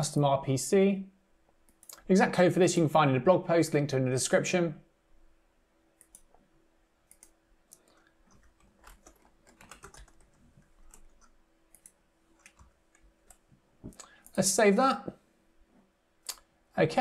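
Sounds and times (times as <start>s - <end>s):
keyboard typing: 7.1s - 14.4s.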